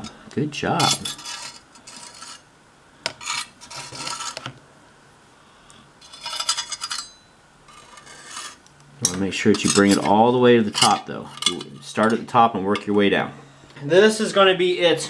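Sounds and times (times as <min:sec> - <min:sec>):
knife scraping paste: 0:07.7 - 0:08.6.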